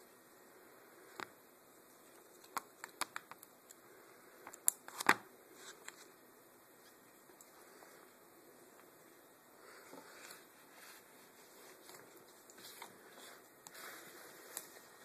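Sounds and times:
book pages flipping: 0:04.5 - 0:06.2, 0:09.9 - 0:15.0.

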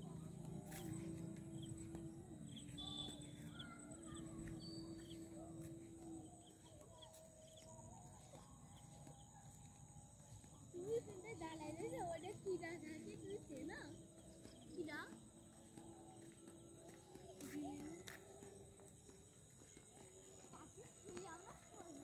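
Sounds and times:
bird chirps: 0:01.6 - 0:09.8.

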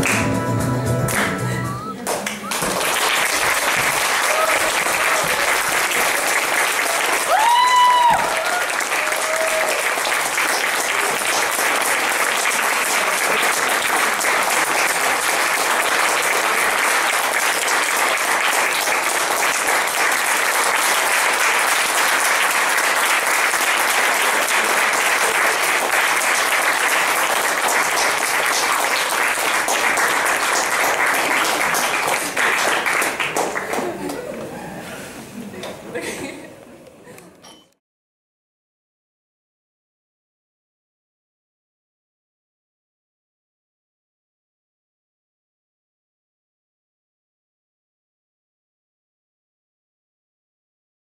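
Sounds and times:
crowd applauding: 0:00.0 - 0:00.4, 0:01.1 - 0:34.6.

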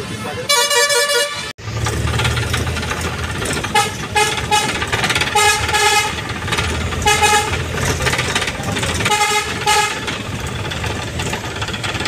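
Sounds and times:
road traffic rumble: 0:00.0 - 0:12.0
vehicle horns honking: 0:00.4 - 0:01.6, 0:03.6 - 0:06.3, 0:07.0 - 0:08.0, 0:09.0 - 0:10.2.

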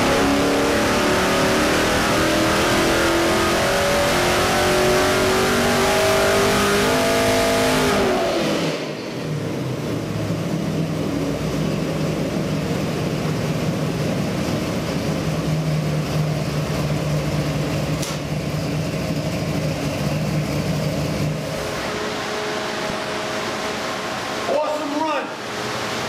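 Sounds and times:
engine running at low speed: 0:00.0 - 0:26.0
steady hum: 0:21.2 - 0:26.0.

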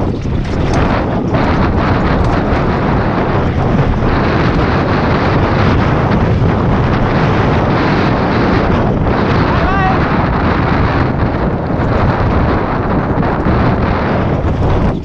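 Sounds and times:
bike knocking over bumps: 0:00.0 - 0:09.3
tyres rumbling on dirt trail: 0:00.0 - 0:15.0
wind buffeting microphone: 0:00.0 - 0:15.0.

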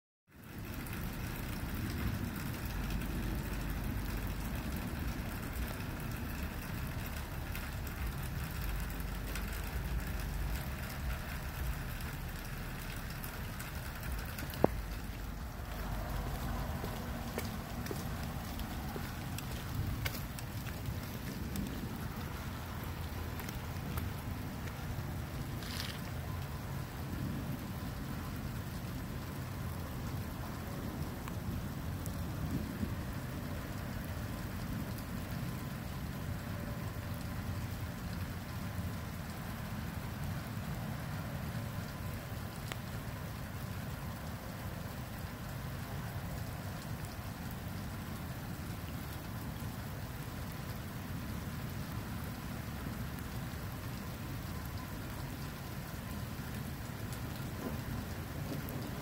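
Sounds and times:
steady rain hiss: 0:00.3 - 0:59.0
low rumble: 0:00.7 - 0:29.7
faint ticks: 0:00.9 - 0:21.8, 0:41.8 - 0:43.0.

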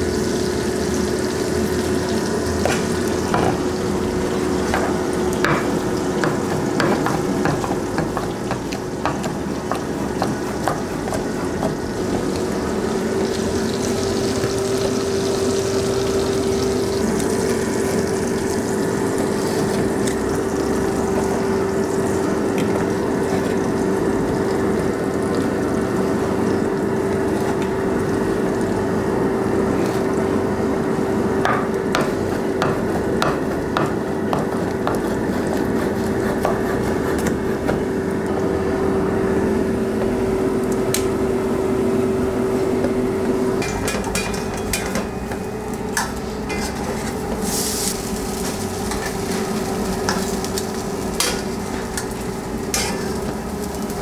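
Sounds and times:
constant hum: 0:00.0 - 0:54.0
frying sizzle: 0:00.0 - 0:54.0
blade and tongs tapping board: 0:04.7 - 0:11.8.

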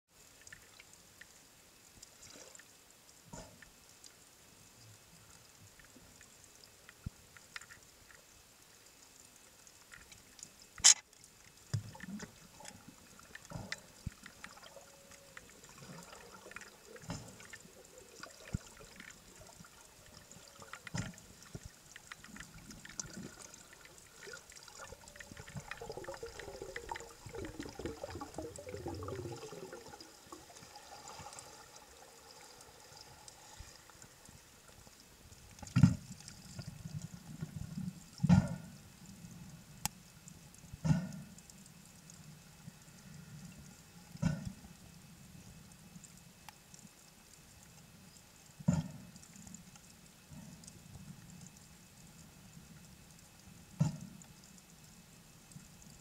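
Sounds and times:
water sloshing and bubbling: 0:00.1 - 0:56.0
small clicks: 0:05.4 - 0:16.0.

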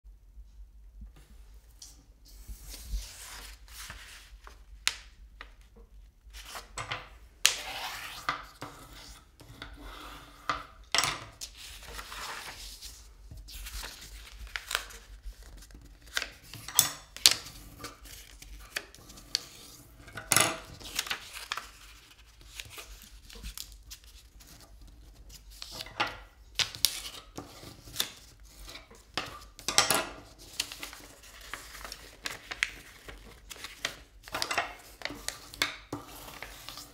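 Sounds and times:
paper folding and rustling: 0:01.8 - 0:09.7, 0:10.6 - 0:36.9
paper crackles: 0:20.6 - 0:25.8, 0:30.3 - 0:36.9.

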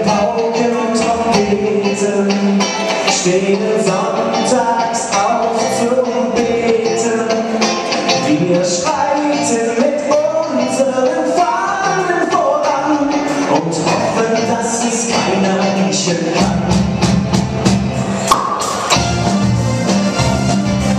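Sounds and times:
male lead vocal: 0:00.0 - 0:17.3
rock band playing live: 0:00.0 - 0:20.9
cymbal and drum hits: 0:18.2 - 0:19.2.

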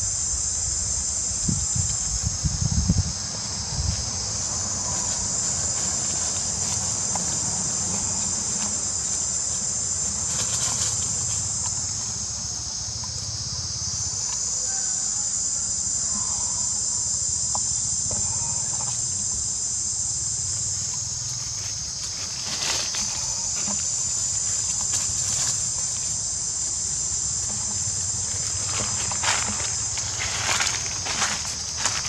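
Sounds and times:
insects buzzing: 0:00.0 - 0:32.0
dry leaves rustling: 0:01.8 - 0:12.8, 0:20.5 - 0:32.0.

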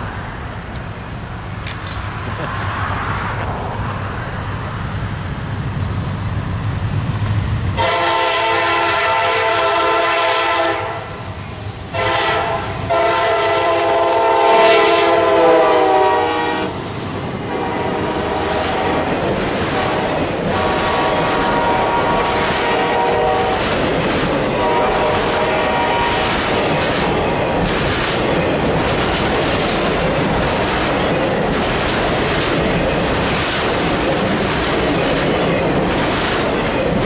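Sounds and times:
diesel locomotive engine rumble: 0:00.0 - 0:37.0
train wheels rumbling: 0:00.0 - 0:37.0
locomotive air horn: 0:07.8 - 0:11.2, 0:11.9 - 0:16.8, 0:17.5 - 0:23.7, 0:24.6 - 0:26.4.

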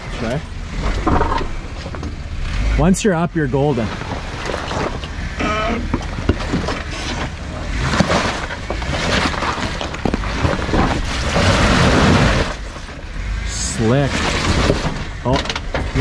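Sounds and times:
engine rumbling under load: 0:00.0 - 0:16.0
tyres crunching over rock: 0:03.5 - 0:16.0.

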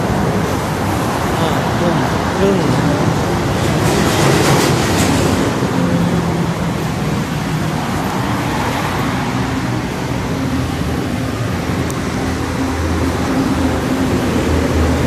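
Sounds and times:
electric metro train rumbling: 0:00.0 - 0:15.0.

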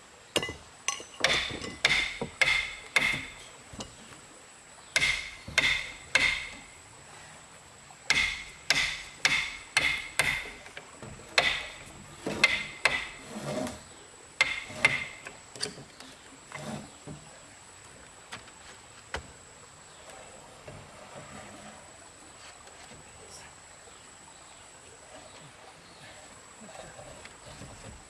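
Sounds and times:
hammer striking timber: 0:00.4 - 0:03.9, 0:05.0 - 0:06.7, 0:08.1 - 0:10.6, 0:11.4 - 0:13.3, 0:14.4 - 0:15.3.

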